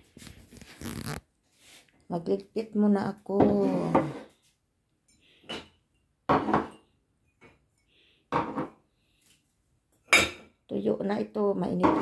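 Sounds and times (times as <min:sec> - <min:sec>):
dishes clinking: 0:10.1 - 0:10.5.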